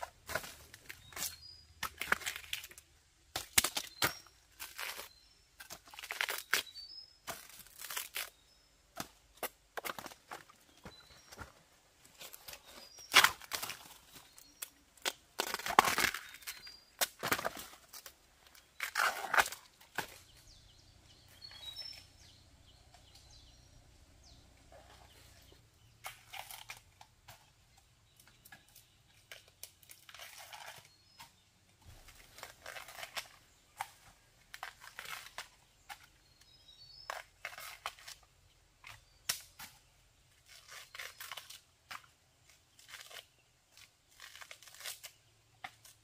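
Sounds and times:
dry plant material crackling: 3.5 - 8.6, 12.1 - 27.4, 28.1 - 36.4, 40.4 - 46.0.

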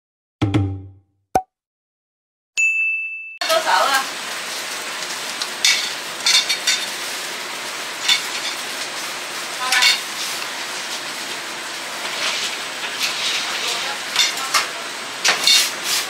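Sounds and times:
food sizzling: 3.4 - 16.0
utensils and dishes clinking: 5.6 - 7.1, 8.0 - 8.8, 9.6 - 10.4, 12.0 - 16.0.

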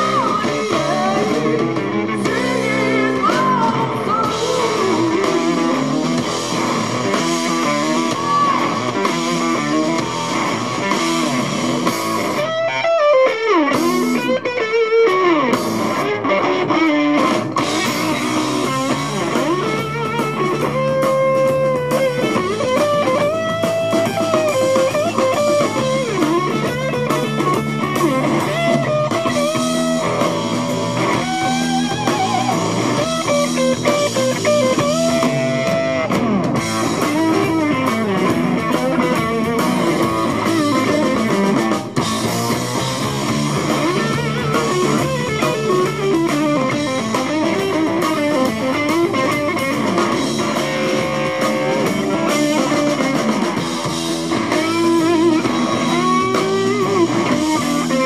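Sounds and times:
bass guitar: 0.0 - 58.0
drums: 0.0 - 58.0
lead electric guitar: 0.0 - 58.0.

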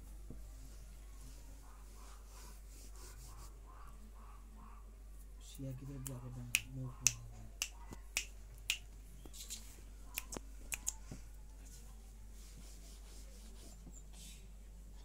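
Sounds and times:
fingers snapping: 6.0 - 11.0.

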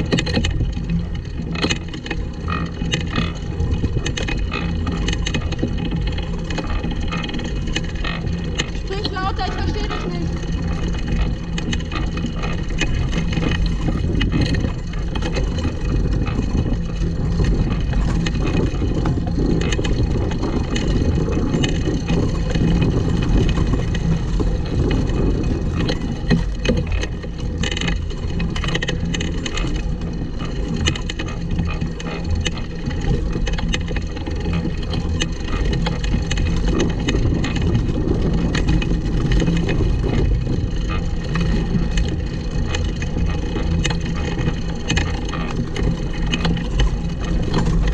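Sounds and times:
go-kart wheels rumbling and rattling: 0.0 - 47.9.

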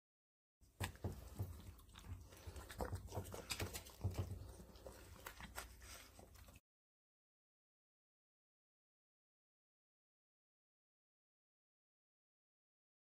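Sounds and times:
dogs crunching hard treats: 0.7 - 6.6.

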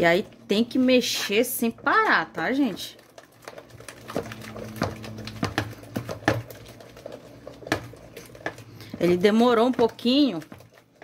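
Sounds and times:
spoon scraping plastic bowl: 3.0 - 11.0
low hum: 4.0 - 6.9.

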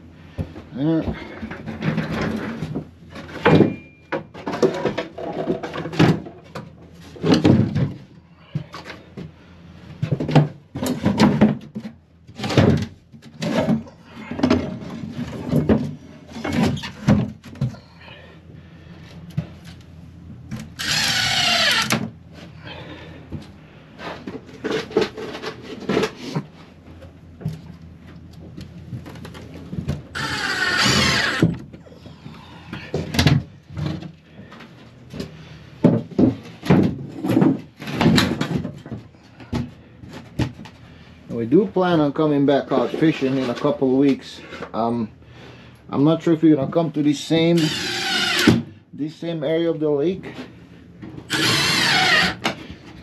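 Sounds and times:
wooden covers and tools clattering: 0.4 - 9.3, 10.0 - 17.8, 32.9 - 40.8
cordless drill driving screw: 20.8 - 21.9, 30.2 - 31.5, 47.6 - 48.6, 51.3 - 52.5.

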